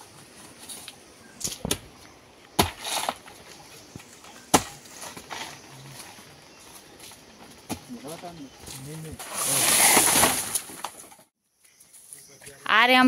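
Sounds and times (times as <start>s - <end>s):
sharp chopping strikes on stem: 2.6s - 2.9s
rustle of leaves: 7.9s - 12.7s.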